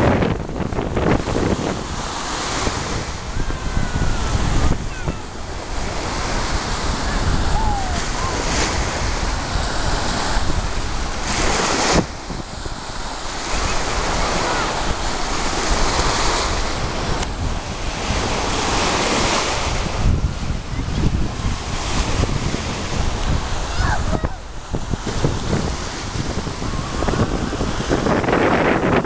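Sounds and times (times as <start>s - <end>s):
surf breaking against seawall: 0.0s - 29.0s
wind buffeting microphone: 0.0s - 29.0s.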